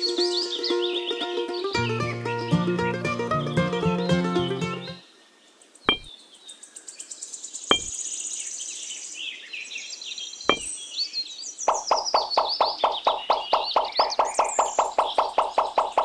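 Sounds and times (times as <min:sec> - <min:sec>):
background music: 0:01.6 - 0:05.0
high chirping: 0:05.9 - 0:06.1, 0:07.7 - 0:08.0, 0:10.5 - 0:10.8, 0:11.7 - 0:16.0.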